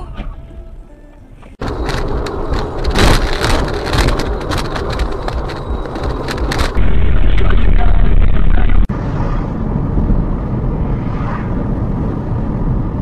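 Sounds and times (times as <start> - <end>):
road noise rumble: 0.0 - 13.0.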